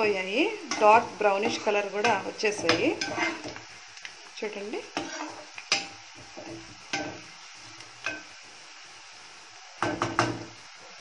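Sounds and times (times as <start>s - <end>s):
onions sizzling in oil: 0.0s - 11.0s
metal utensil knocking on pan: 0.7s - 3.6s, 9.8s - 10.5s.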